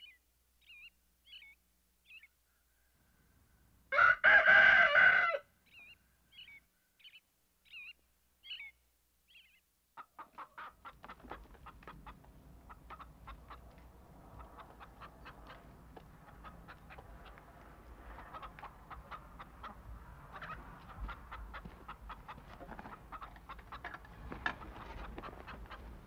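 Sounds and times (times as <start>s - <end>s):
faint bird chirps: 0.0s - 3.3s, 5.6s - 9.7s
rooster crowing: 3.9s - 5.5s
hens clucking: 10.0s - 26.0s.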